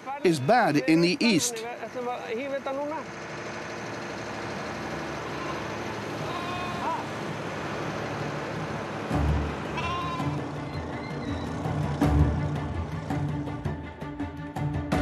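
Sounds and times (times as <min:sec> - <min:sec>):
sheep bleating: 0:05.2 - 0:07.1, 0:09.7 - 0:10.8
music: 0:09.0 - 0:15.0.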